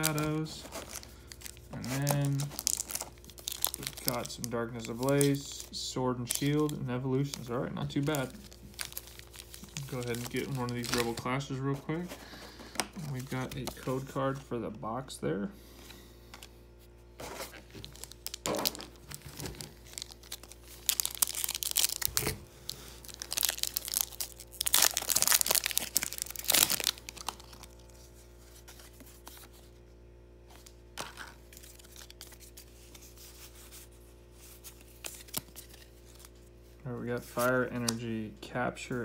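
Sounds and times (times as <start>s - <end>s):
foil pack tearing and crinkling: 0.0s - 5.4s, 6.2s - 11.5s, 17.4s - 28.0s.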